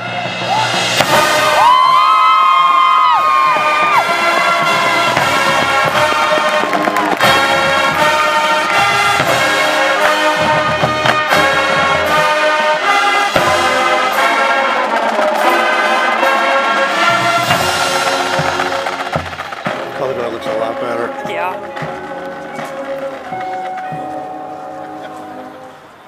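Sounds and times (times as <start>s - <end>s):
brass chords: 0.0s - 26.0s
sharp drum hits: 0.4s - 8.2s.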